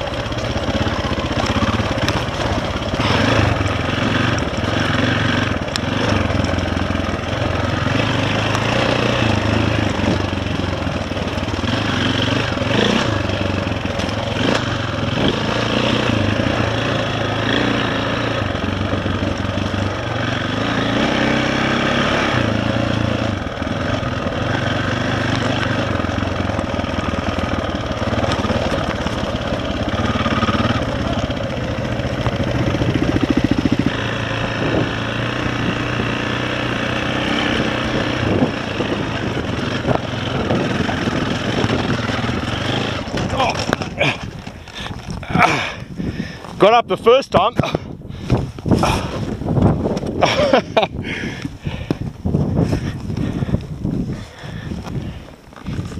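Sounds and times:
dirt bike engine running: 0:00.0 - 0:55.9
wheels knocking over rock: 0:28.0 - 0:30.0, 0:39.9 - 0:45.5.

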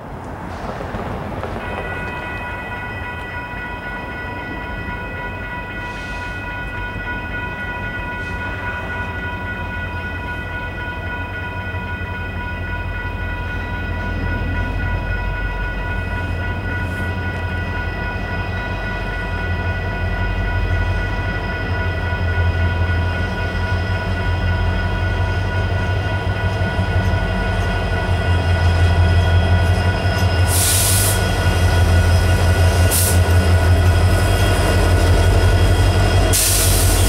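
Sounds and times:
steady high-pitched tone: 0:12.2 - 0:37.0.

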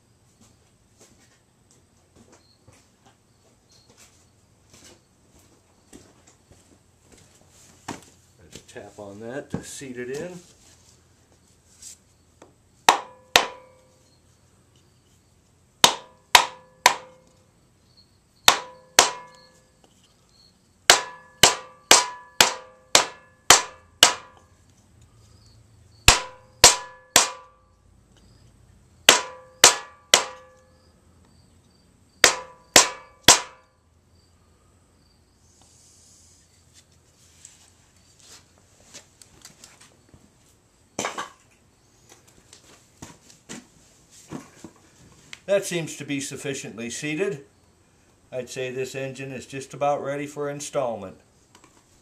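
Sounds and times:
mallet knocking on wooden block: 0:12.9 - 0:13.8, 0:15.8 - 0:17.3, 0:18.5 - 0:19.4, 0:20.9 - 0:24.5, 0:26.1 - 0:27.6, 0:29.1 - 0:30.6, 0:32.2 - 0:33.6.

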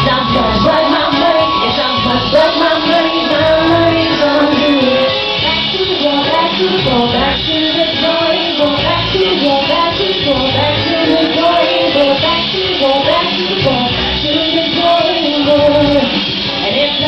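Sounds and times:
live band music: 0:00.0 - 0:07.1, 0:08.0 - 0:15.0
woman singing into a microphone: 0:00.0 - 0:17.0
low bass pulse: 0:10.2 - 0:13.8.

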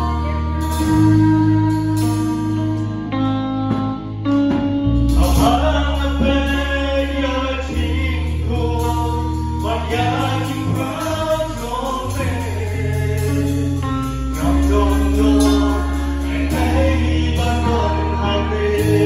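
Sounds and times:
electric guitar: 0:00.0 - 0:19.0
low bass notes: 0:00.0 - 0:19.0
voices singing slow song: 0:00.0 - 0:19.0.

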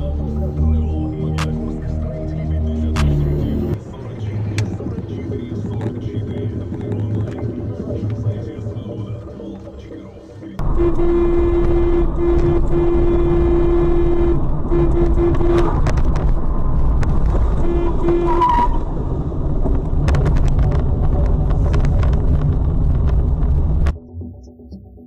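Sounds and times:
car road noise: 0:01.4 - 0:24.0
car horn blasts: 0:10.6 - 0:16.1, 0:17.5 - 0:18.8.

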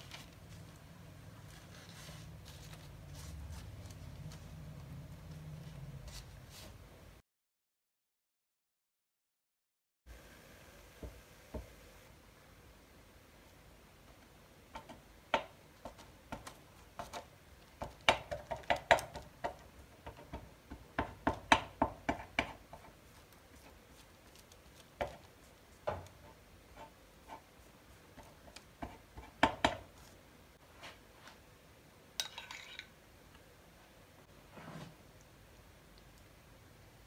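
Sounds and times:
fork tapping pizza dough: 0:14.7 - 0:23.0, 0:25.0 - 0:25.3.

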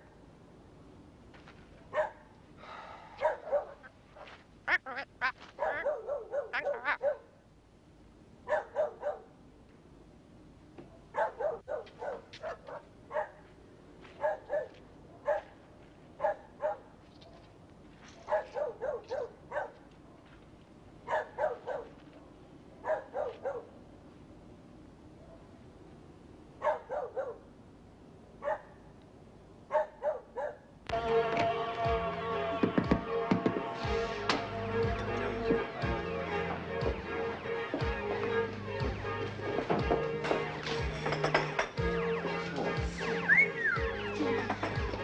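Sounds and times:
dog yapping: 0:03.2 - 0:03.9, 0:04.7 - 0:07.3, 0:08.5 - 0:09.2, 0:11.2 - 0:13.4, 0:18.3 - 0:19.8, 0:26.6 - 0:27.4, 0:29.7 - 0:30.6.

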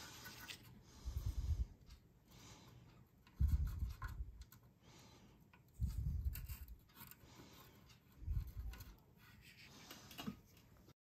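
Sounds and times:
desoldering braid scratching: 0:05.8 - 0:10.2.

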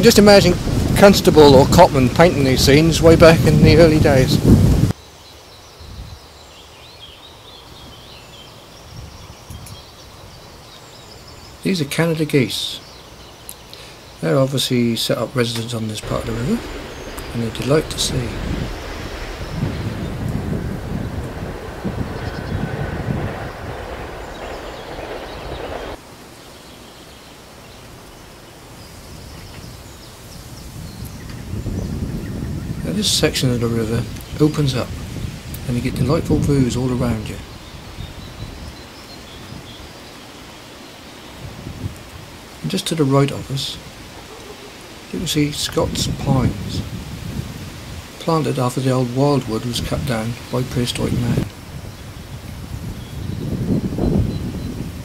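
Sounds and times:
songbird warbling: 0:15.8 - 0:31.5
low rumble: 0:16.0 - 0:26.0
rushing noise: 0:16.0 - 0:26.6
high bird chirps: 0:16.0 - 0:27.3.

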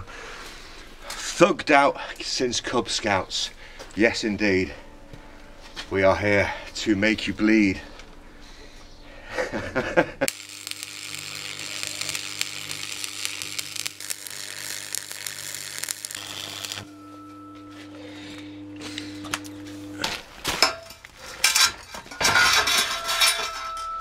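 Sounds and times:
welder crackling sizzle: 0:10.3 - 0:17.0, 0:18.8 - 0:20.7
welding machine hum: 0:10.3 - 0:20.7
metallic clanks and knocks: 0:20.6 - 0:24.0.

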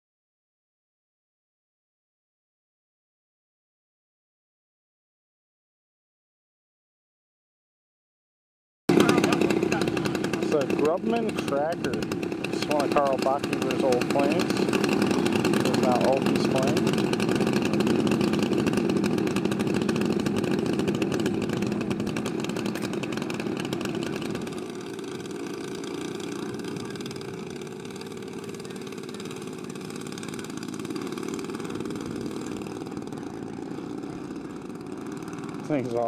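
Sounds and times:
model plane engines running: 0:08.9 - 0:36.0.

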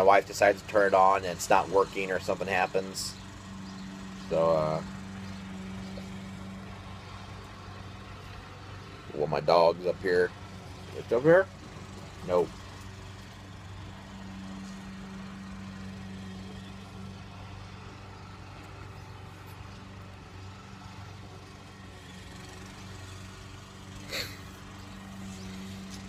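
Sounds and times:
motor humming: 0:00.0 - 0:26.0.

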